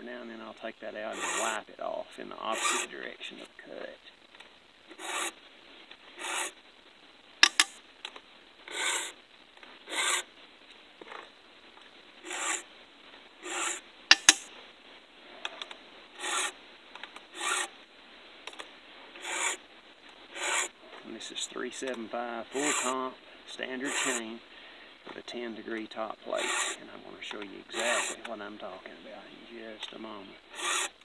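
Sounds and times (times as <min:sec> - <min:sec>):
file rasping on chainsaw chain: 0:01.1 - 0:01.6, 0:02.5 - 0:02.9, 0:05.0 - 0:05.3, 0:06.2 - 0:06.5, 0:07.4 - 0:07.7, 0:08.7 - 0:09.1, 0:09.9 - 0:10.2, 0:12.2 - 0:12.6, 0:13.4 - 0:14.5, 0:16.2 - 0:16.5, 0:17.4 - 0:17.7, 0:19.2 - 0:19.6, 0:20.4 - 0:20.7, 0:22.6 - 0:23.0, 0:23.8 - 0:24.2, 0:26.4 - 0:26.8, 0:27.7 - 0:28.3, 0:30.5 - 0:31.0
sharp clicks: 0:07.4 - 0:08.2, 0:14.1 - 0:14.5.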